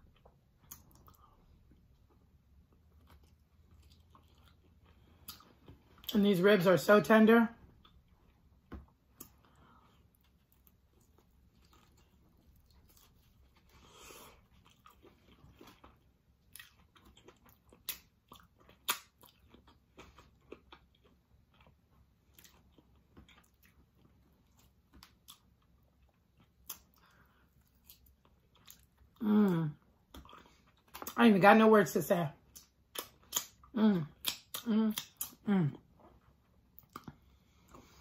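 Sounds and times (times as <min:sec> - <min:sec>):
person chewing: 0:00.0 - 0:06.2, 0:07.7 - 0:31.2, 0:32.5 - 0:38.0.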